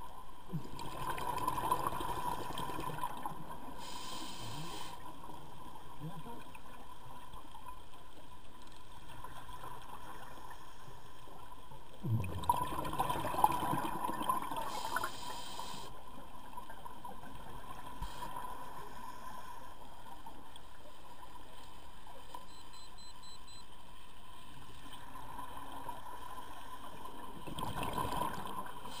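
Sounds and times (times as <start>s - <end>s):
scuba exhaust bubbles: 0.5s - 6.1s, 11.9s - 15.9s
underwater hiss: 3.7s - 5.4s, 14.5s - 16.0s, 18.0s - 19.8s, 28.8s - 29.0s.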